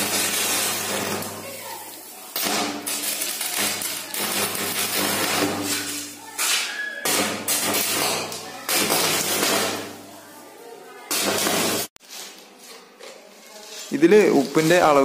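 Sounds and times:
welding arc crackling and sputtering: 0.0s - 6.4s, 7.0s - 12.0s.

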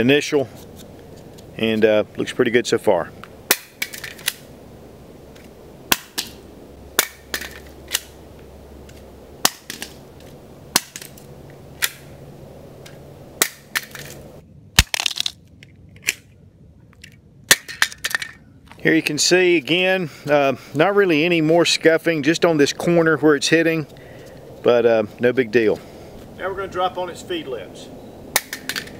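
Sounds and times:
plastic magazines clacking on ground: 3.5s - 4.5s, 7.0s - 8.2s, 8.9s - 12.0s, 13.4s - 14.2s, 14.8s - 16.3s, 16.9s - 18.4s, 28.4s - 28.9s
magazine bouncing: 7.0s - 8.2s, 14.8s - 16.3s, 17.0s - 18.4s, 28.4s - 28.9s.

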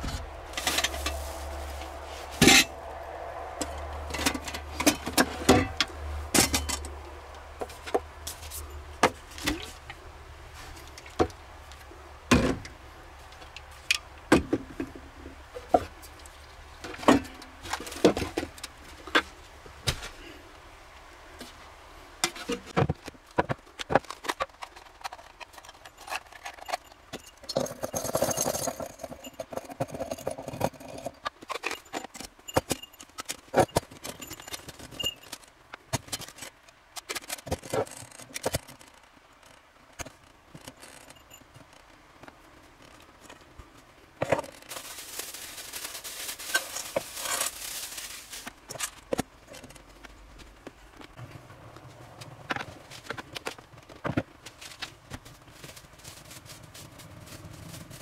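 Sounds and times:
camp gear knocking and clinking: 0.0s - 2.9s, 3.5s - 10.0s, 13.4s - 16.2s, 16.8s - 20.2s, 22.2s - 45.0s
cloth sack rustling: 44.7s - 48.6s.

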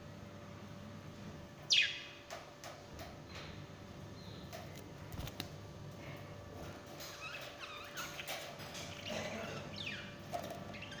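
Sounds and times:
budgerigars chirping: 7.6s - 11.0s.

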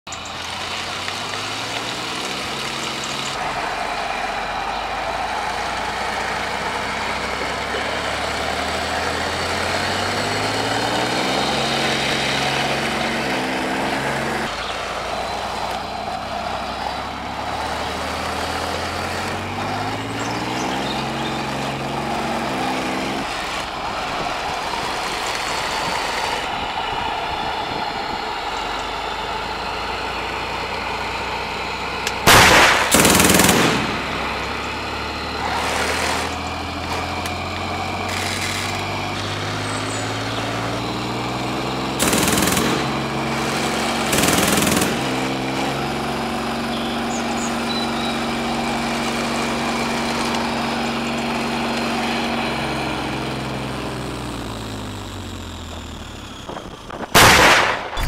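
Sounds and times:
toy tank engine sound effect: 0.1s - 58.0s
gun firing sound effect: 32.3s - 34.2s, 57.1s - 58.0s.

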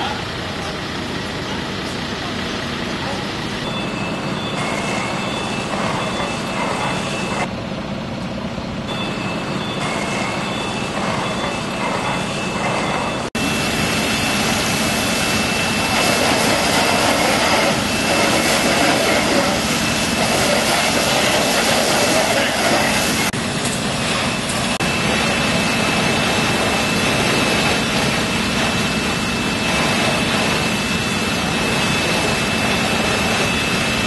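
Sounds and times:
fire engine pumps running: 0.0s - 34.0s.

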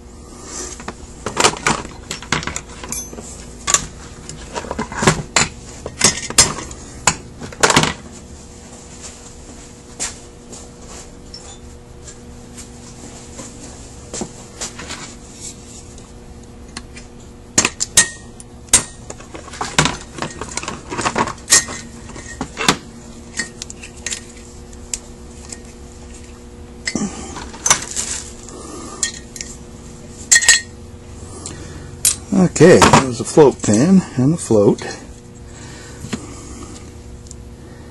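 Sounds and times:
steady low hum: 0.0s - 37.9s
metal parts clinking and knocking: 1.3s - 6.7s.

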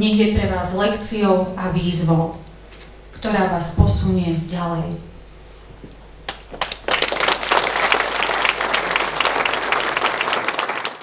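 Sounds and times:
audience applauding: 6.3s - 11.0s.

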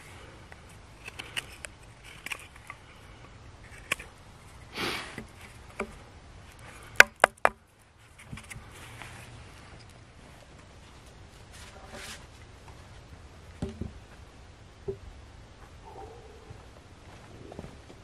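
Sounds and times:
sharp wooden knocks: 7.0s - 7.6s.

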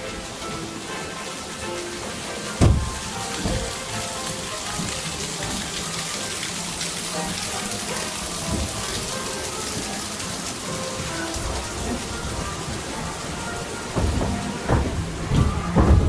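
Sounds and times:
soft music: 0.0s - 16.0s
water rushing and splashing: 0.0s - 16.0s
low thumps: 2.6s - 3.8s, 11.0s - 16.0s.

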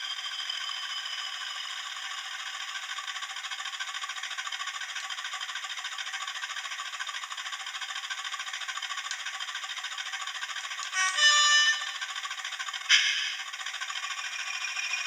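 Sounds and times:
model diesel engine idling: 0.0s - 15.0s
horn blast: 11.0s - 12.0s.

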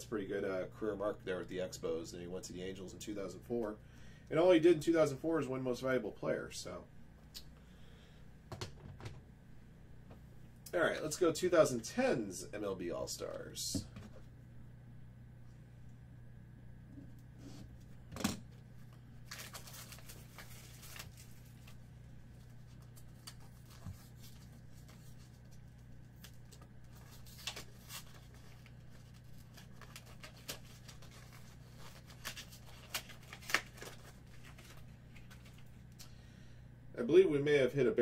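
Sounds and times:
faint low hum: 0.0s - 38.0s.

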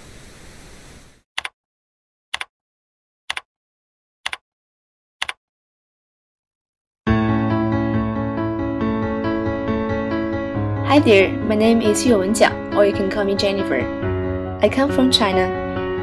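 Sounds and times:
static hiss: 0.0s - 1.2s
sharp double clicks: 1.4s - 1.6s, 2.3s - 2.5s, 3.3s - 3.5s, 4.2s - 4.4s, 5.2s - 5.4s
piano-led music: 7.1s - 16.0s.

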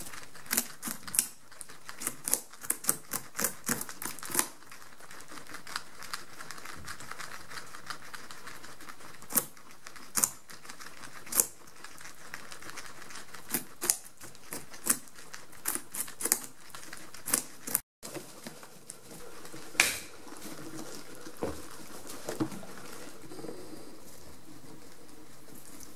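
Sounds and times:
guinea pigs gnawing pumpkin: 0.0s - 25.9s.

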